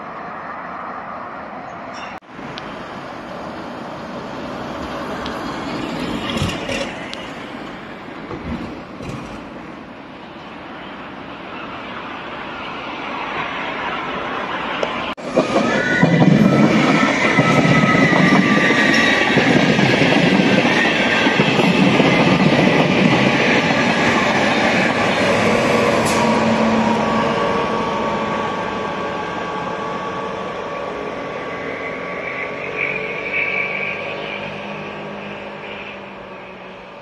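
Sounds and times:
train wheels rumbling over rails: 2.7s - 10.0s, 14.7s - 35.4s
high squealing of wheels: 11.5s - 37.0s.

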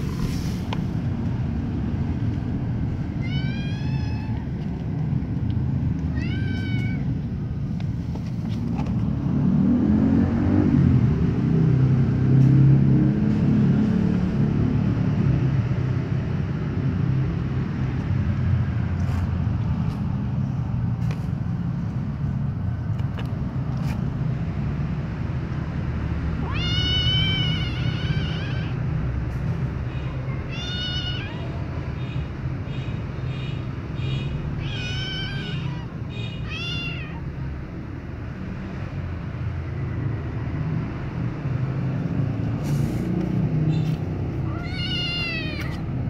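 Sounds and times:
kitten meowing: 3.2s - 4.5s, 6.1s - 7.2s, 26.4s - 28.9s, 29.9s - 32.1s, 34.2s - 37.4s, 43.7s - 45.9s.

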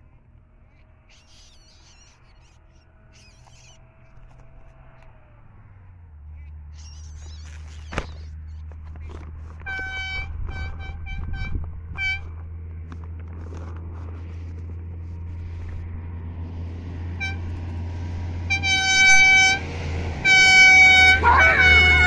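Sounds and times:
low engine hum: 0.0s - 22.0s
vehicle horn toots: 9.6s - 12.4s, 17.1s - 17.6s, 18.4s - 22.0s.

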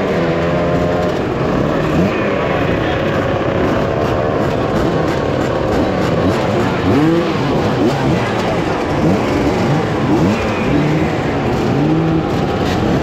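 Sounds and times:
dirt bike engines revving: 0.0s - 13.0s.

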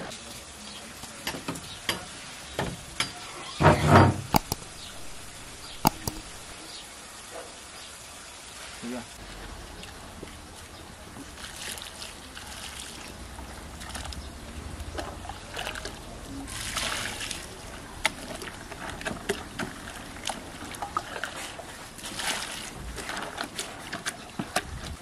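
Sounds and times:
sharp ticks: 4.3s - 6.5s
liquid pouring into a bucket: 15.0s - 24.0s.

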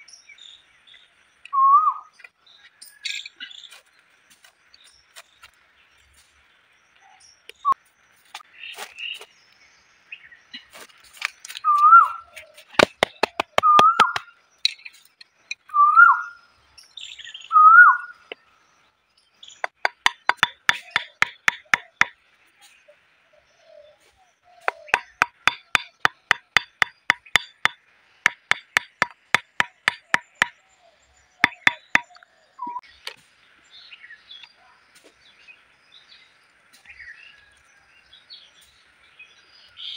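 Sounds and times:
whistled bird-like chirps: 1.5s - 3.4s, 11.6s - 12.4s, 15.6s - 18.3s, 30.6s - 32.9s
stone tapping bamboo stakes: 11.2s - 14.9s, 19.6s - 22.2s, 24.6s - 30.6s, 31.4s - 32.2s.

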